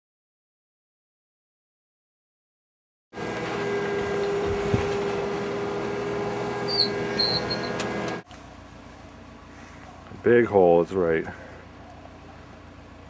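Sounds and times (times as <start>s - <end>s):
excavator engine running: 3.2s - 10.0s
short high squeaks: 6.4s - 8.2s.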